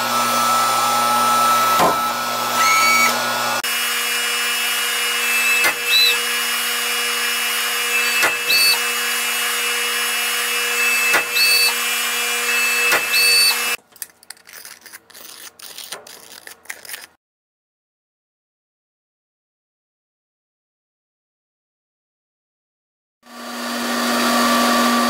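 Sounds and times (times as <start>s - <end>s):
punch press running: 0.0s - 13.8s
sharp clacks with high squeal: 8.0s - 8.8s, 11.0s - 11.8s.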